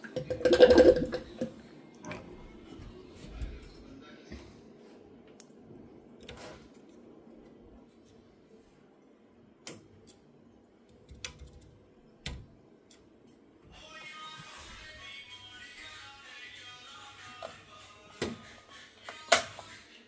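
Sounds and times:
background music: 0:13.7 - 0:20.0.

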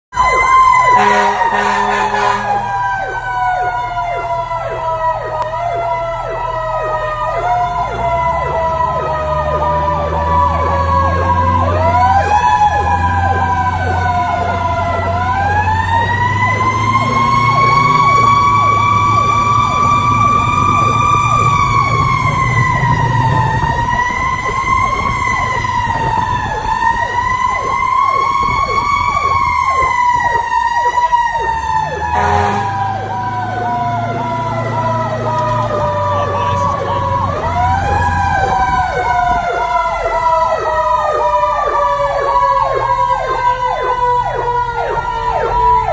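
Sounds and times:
fire truck siren wailing: 0:00.1 - 0:45.9
rapidly pulsing siren tone: 0:00.1 - 0:45.9
truck engine rumbling: 0:00.1 - 0:45.9
low horn blast: 0:00.9 - 0:02.8, 0:32.0 - 0:37.3.

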